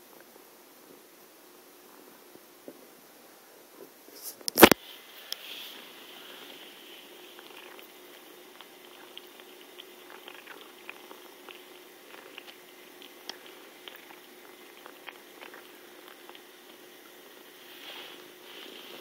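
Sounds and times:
faint steady hiss: 0.0 - 19.0
cat licking and chewing: 6.2 - 19.0.

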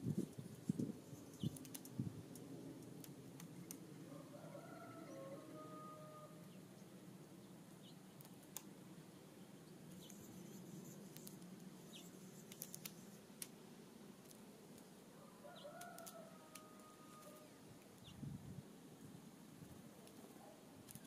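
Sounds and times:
soft bird chirps and clicks: 1.2 - 3.8, 7.8 - 8.7, 9.9 - 13.6, 15.5 - 18.2, 20.0 - 21.0
distant rooster crowing: 4.1 - 6.5, 15.1 - 17.6.

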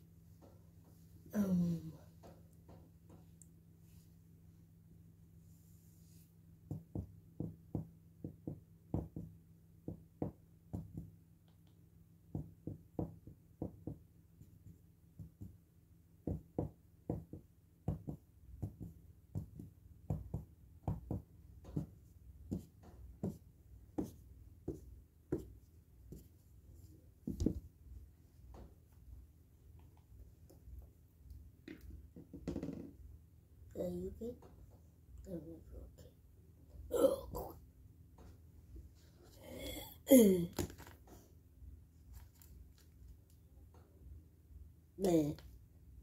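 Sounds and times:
faint steady hum: 0.0 - 46.0
soft thumps on laminate floor: 27.2 - 27.7.

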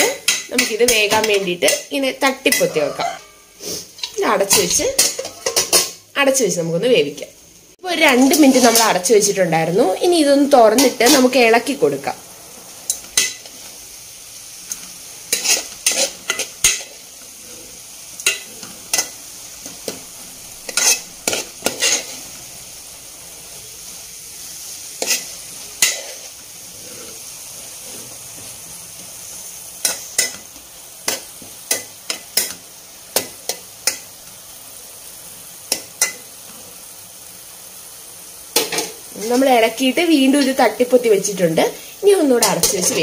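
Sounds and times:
faint sizzle: 0.0 - 43.0
spoon scraping metal pan: 0.2 - 6.0, 8.2 - 9.0, 14.7 - 19.2, 20.6 - 22.3, 25.0 - 28.5, 29.8 - 30.5, 42.4 - 43.0.

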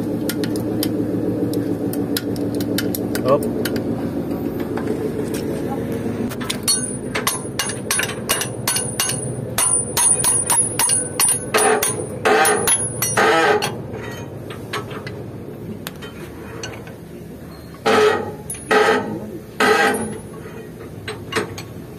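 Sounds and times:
wrench clinking on metal: 6.5 - 14.9.

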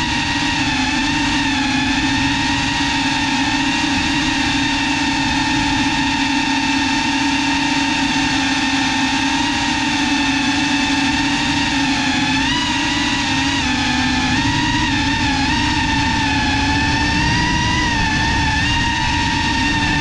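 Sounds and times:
drone motors whining: 0.0 - 20.0
rushing air from propellers: 12.7 - 20.0.

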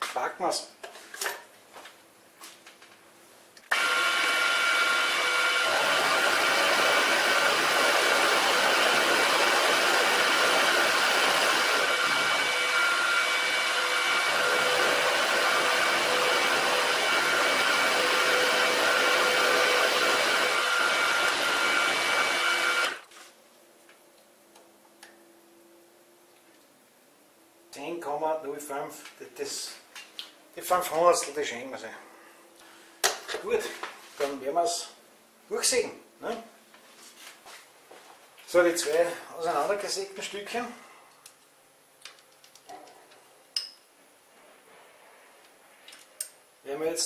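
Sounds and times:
milling machine cutting metal: 3.7 - 23.0.

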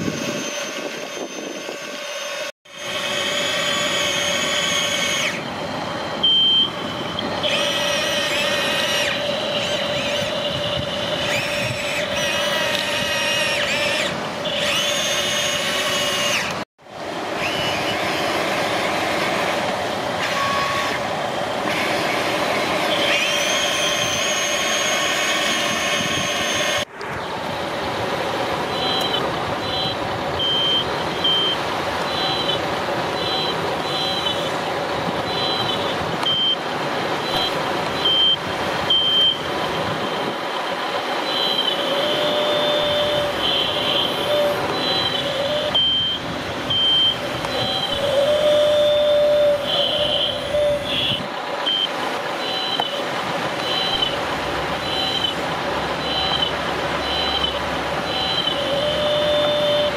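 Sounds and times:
electric gear motor whine: 0.0 - 16.6, 17.3 - 27.8, 28.6 - 55.4, 56.0 - 59.9
high electronic beeps: 6.0 - 7.7, 28.7 - 32.6, 33.2 - 34.5, 35.3 - 36.6, 37.2 - 40.3, 42.5 - 48.6, 49.7 - 53.0, 53.6 - 54.2, 54.8 - 55.4, 56.0 - 59.9.

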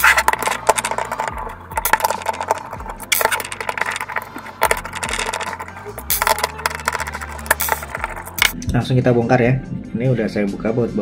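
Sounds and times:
screwdriver clicking and scraping: 0.0 - 8.6.

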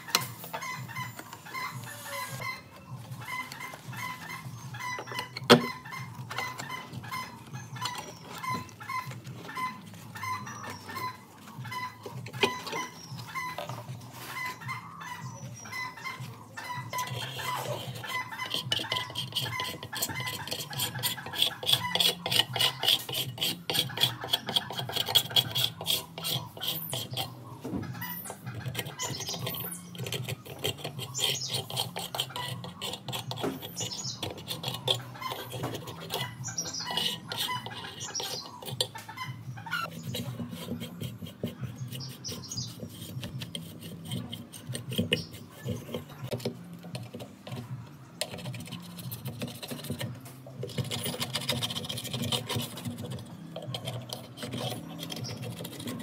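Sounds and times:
scraping glue off metal rim: 16.9 - 39.0, 39.8 - 56.0.

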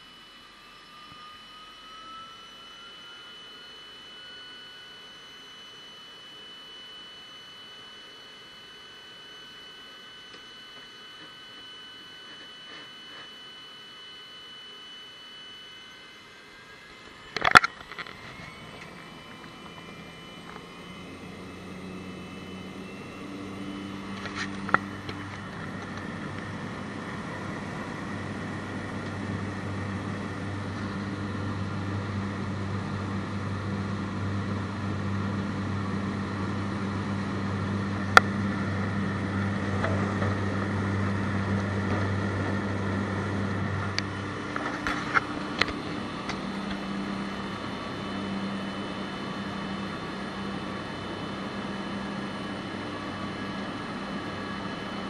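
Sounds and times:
floatplane engine and propeller: 16.3 - 55.0.

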